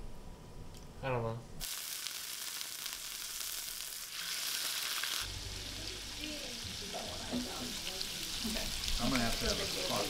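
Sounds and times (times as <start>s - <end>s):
food sizzling in a pan: 1.6s - 10.0s.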